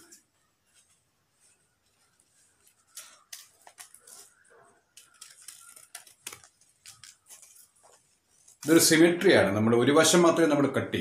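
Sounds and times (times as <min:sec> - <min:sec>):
scissors snipping paper: 0:02.6 - 0:08.7.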